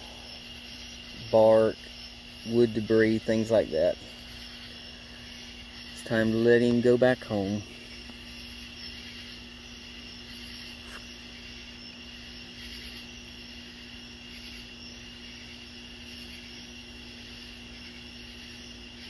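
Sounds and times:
insect trill: 0.0 - 19.0.

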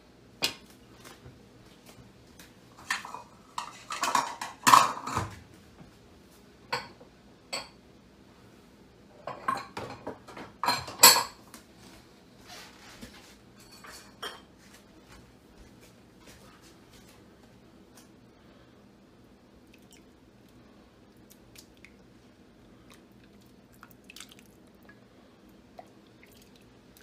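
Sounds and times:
dishes and cutlery clinking: 2.8 - 5.4, 9.2 - 11.4, 13.6 - 14.7.

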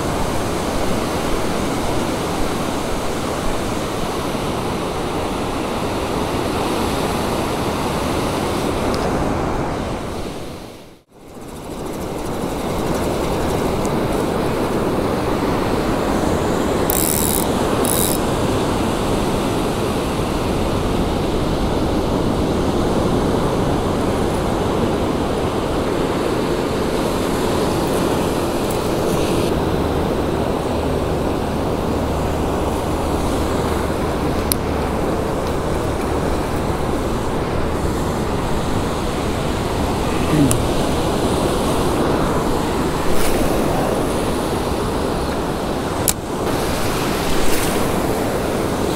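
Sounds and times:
ocean surf breaking on beach: 11.9 - 48.9.

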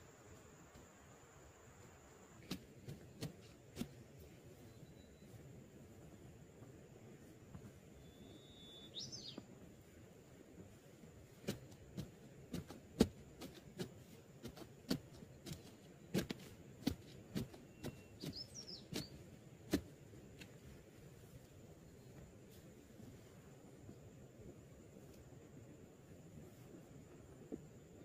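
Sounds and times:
digging tool striking soil: 2.4 - 4.0, 11.3 - 20.6
bird chirping: 4.6 - 5.4, 8.0 - 9.5, 17.4 - 19.3.

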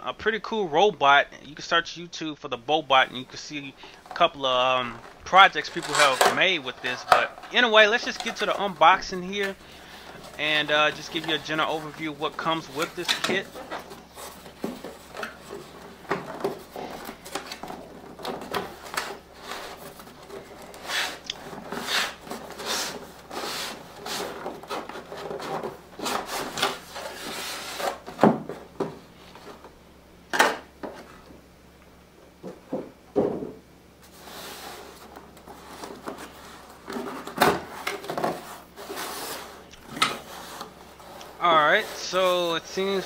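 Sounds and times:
cardboard scraping against cardboard: 4.9 - 28.2, 34.0 - 43.0.

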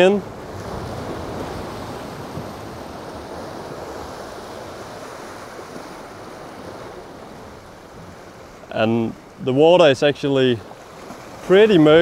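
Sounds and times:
wind on microphone: 0.0 - 8.2
sea waves breaking on rocks: 0.0 - 12.0.

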